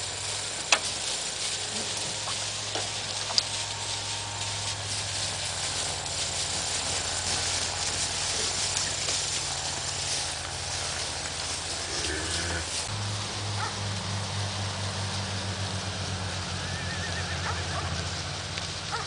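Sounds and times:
steady outdoor hiss: 0.0s - 19.0s.

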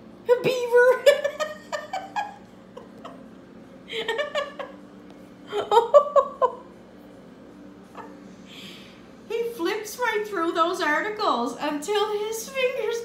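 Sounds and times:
woman laughing: 0.8s - 3.3s, 3.9s - 4.8s, 5.5s - 6.7s.

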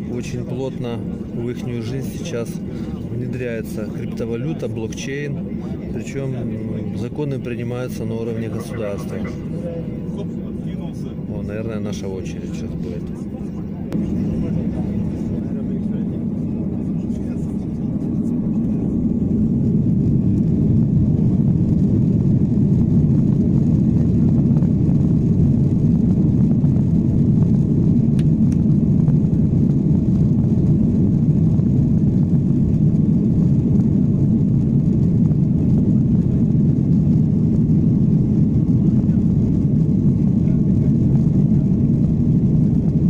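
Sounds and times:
jet engines rumbling: 0.0s - 43.0s.

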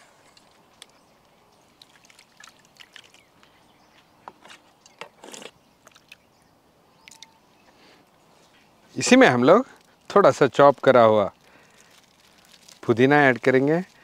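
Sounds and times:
soft wet plops of curd: 0.7s - 3.6s, 11.4s - 13.5s.

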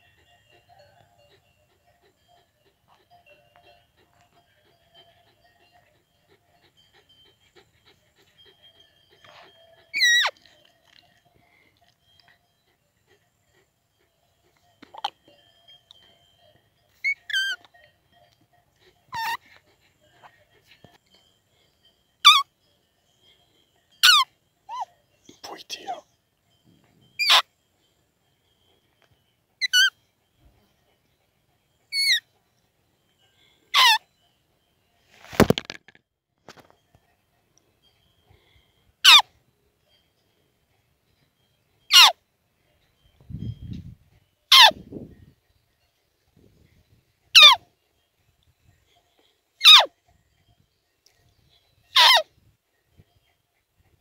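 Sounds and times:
faint rhythmic ticking: 0.0s - 54.0s
squeaky deer call peep: 8.4s - 10.6s, 18.8s - 19.5s, 22.2s - 22.5s, 24.0s - 26.0s, 27.2s - 27.5s, 31.9s - 32.2s, 33.7s - 34.1s, 39.0s - 39.3s, 41.9s - 42.2s, 44.5s - 44.8s, 47.4s - 47.6s, 49.6s - 49.9s, 51.9s - 52.3s.

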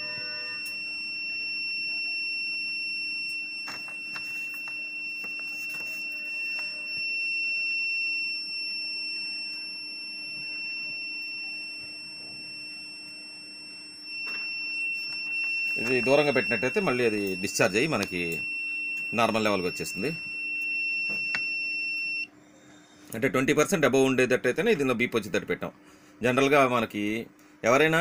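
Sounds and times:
high-pitched alarm buzzer tone: 0.0s - 22.3s.

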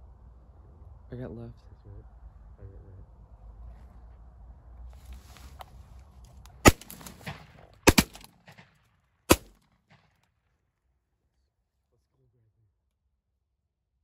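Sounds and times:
shotgun shots: 6.6s - 10.1s.

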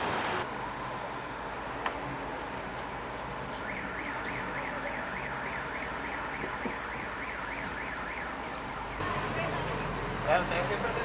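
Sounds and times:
low street noise: 0.0s - 11.0s
electronic siren sweeping: 3.6s - 9.0s.

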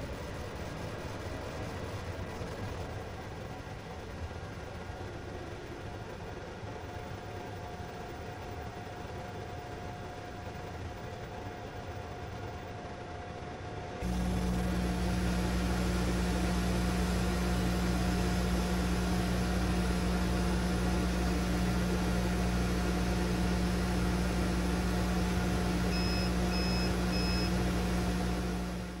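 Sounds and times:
laser engraver hum and fan: 0.0s - 29.0s
short electronic beeps: 25.9s - 27.5s.

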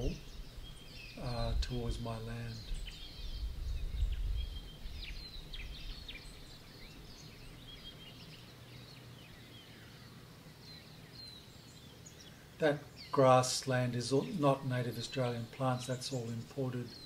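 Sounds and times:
birds chirping and whistling: 0.0s - 17.0s
low rumble: 1.2s - 6.3s.

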